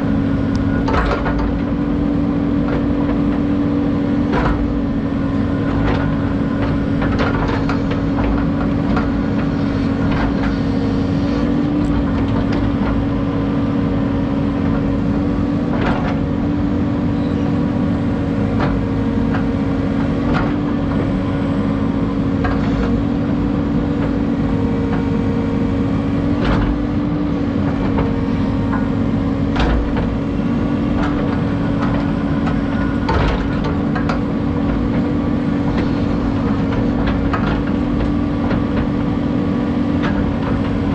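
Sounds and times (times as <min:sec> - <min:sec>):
excavator diesel engine: 0:00.0 - 0:40.9
sharp knocks and clatter: 0:05.7 - 0:10.6, 0:30.9 - 0:35.1.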